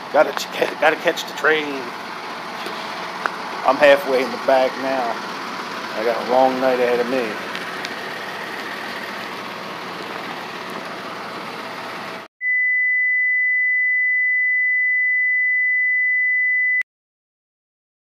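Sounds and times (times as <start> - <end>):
electronic beep tone: 12.4 - 16.8.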